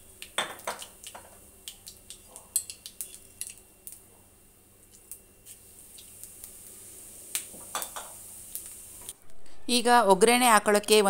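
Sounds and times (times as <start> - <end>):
oil sizzling: 0.0 - 4.0, 4.8 - 9.2.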